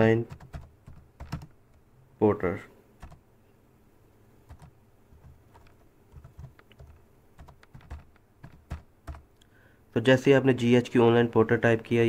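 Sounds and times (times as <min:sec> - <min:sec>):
keyboard key clicks: 0:00.3 - 0:01.5, 0:04.5 - 0:09.3.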